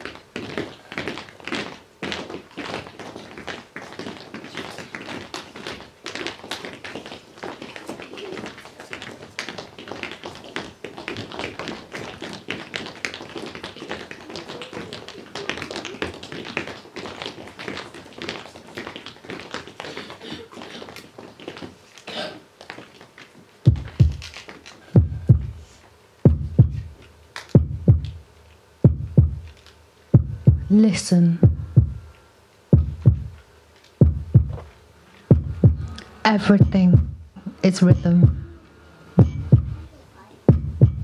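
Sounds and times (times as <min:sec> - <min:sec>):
tap shoes tapping on hard floor: 0:00.0 - 0:25.6, 0:26.3 - 0:28.2, 0:32.7 - 0:33.4, 0:34.0 - 0:36.0, 0:40.5 - 0:41.0
deep slow thumps: 0:23.7 - 0:24.2, 0:25.0 - 0:25.6, 0:26.3 - 0:27.0, 0:27.6 - 0:28.2, 0:28.8 - 0:29.5, 0:30.2 - 0:30.8, 0:31.4 - 0:32.1, 0:32.8 - 0:33.4, 0:34.0 - 0:34.7, 0:35.3 - 0:38.6, 0:39.2 - 0:39.9, 0:40.5 - 0:41.0.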